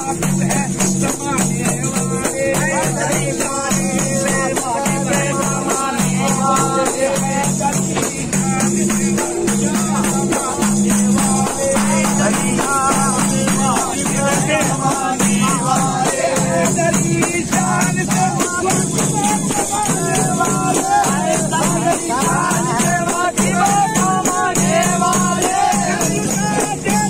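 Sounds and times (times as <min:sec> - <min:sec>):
frame drums beaten fast: 0:00.0 - 0:27.0
men singing together: 0:00.0 - 0:27.0.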